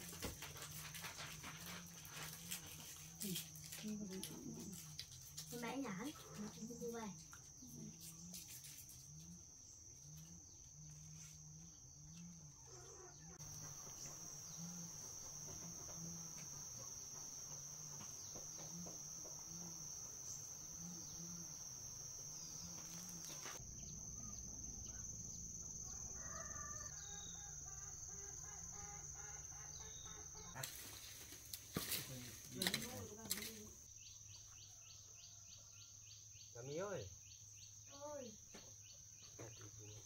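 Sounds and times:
high-pitched insect drone: 2.2s - 31.4s.

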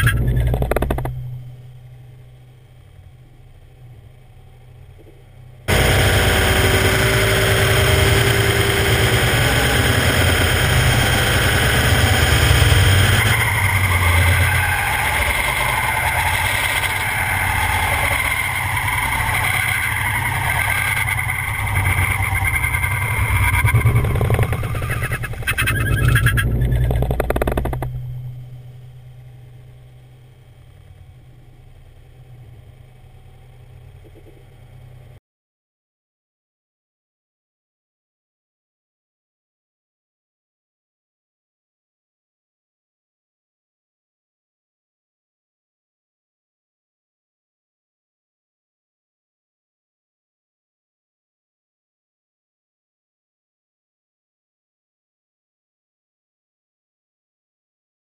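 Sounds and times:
tire squealing: 0.0s - 1.2s, 5.7s - 28.8s
road and wind noise: 0.0s - 1.5s, 4.9s - 29.7s
low rumble: 0.0s - 14.3s, 15.1s - 35.2s.

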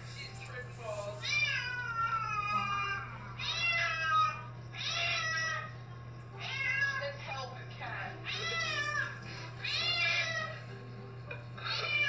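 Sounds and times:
cat meowing: 1.2s - 5.7s, 6.4s - 7.0s, 8.2s - 10.6s, 11.6s - 12.0s.

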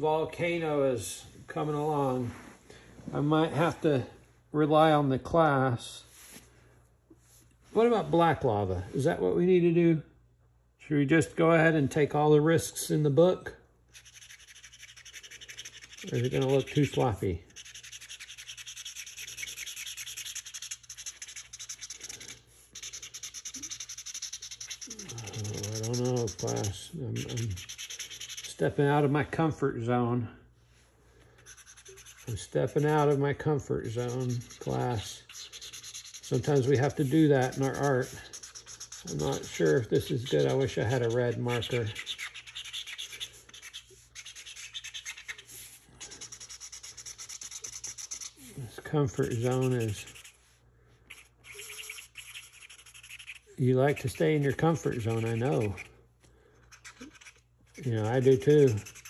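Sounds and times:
marker scribbling on cardboard: 13.9s - 29.2s, 31.4s - 50.5s, 51.1s - 55.9s, 56.6s - 59.0s.

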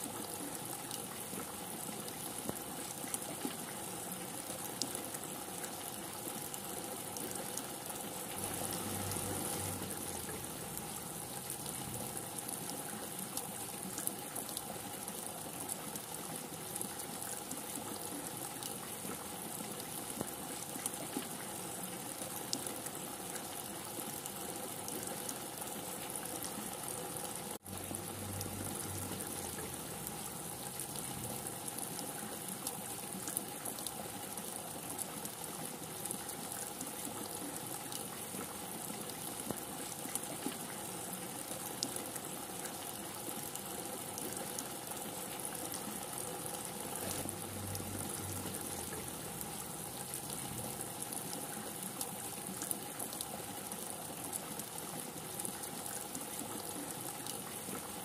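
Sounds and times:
heavy rain falling: 8.2s - 12.5s, 26.4s - 32.1s, 46.0s - 51.3s.

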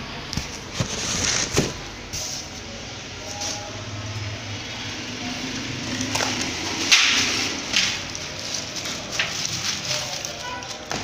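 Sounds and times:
cardboard rustling and scraping: 0.4s - 2.6s, 7.2s - 11.0s.

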